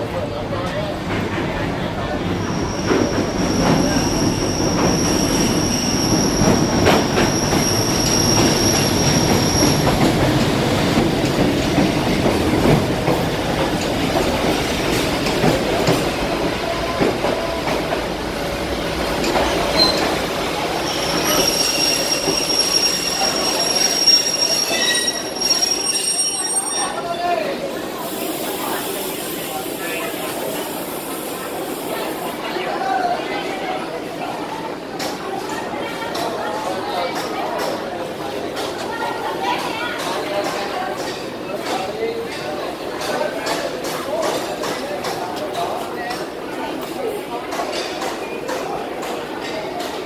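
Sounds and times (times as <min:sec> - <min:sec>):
train wheels rumbling on rails: 0:00.0 - 0:50.0
high thin squeal: 0:20.9 - 0:27.1.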